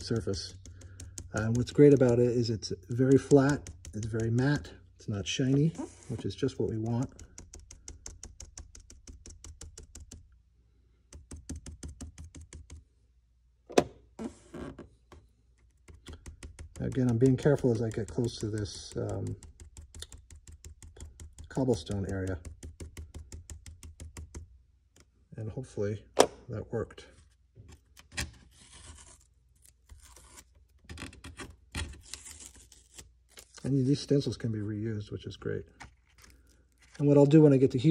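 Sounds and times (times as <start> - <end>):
paintbrush tapping dry: 0.0 - 4.7, 6.6 - 10.2, 15.8 - 24.4
masking tape peeling: 28.5 - 33.7.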